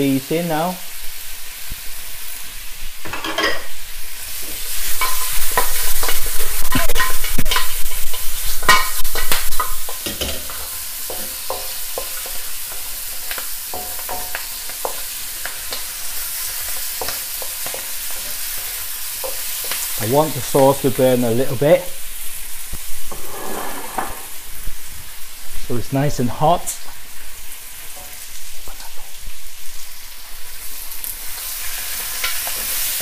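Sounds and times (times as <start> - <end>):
meat sizzling in wok: 0.0 - 33.0
wooden spatula scraping pan: 23.1 - 24.4.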